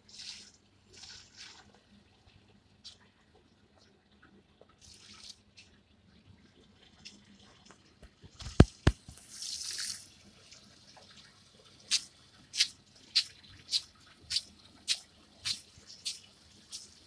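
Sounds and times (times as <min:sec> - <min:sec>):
water splashing onto plants: 0:08.4 - 0:10.1, 0:11.9 - 0:17.0.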